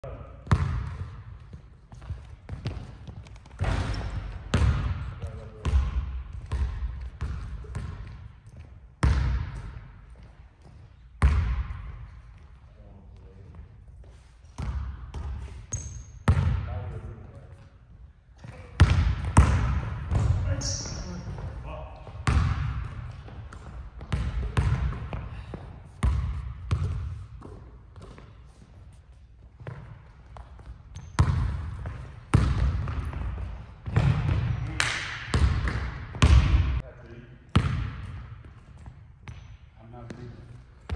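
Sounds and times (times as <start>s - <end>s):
basketball bouncing on hardwood: 0.5s - 5.0s, 22.2s - 25.3s, 26.0s - 28.3s, 29.6s - 34.5s.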